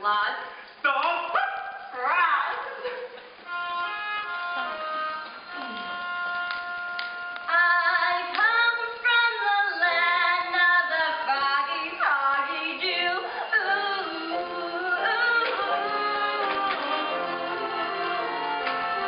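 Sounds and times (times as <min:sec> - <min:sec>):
orchestra accompanying: 0:03.5 - 0:07.5, 0:13.6 - 0:19.0
woman singing: 0:07.4 - 0:19.0.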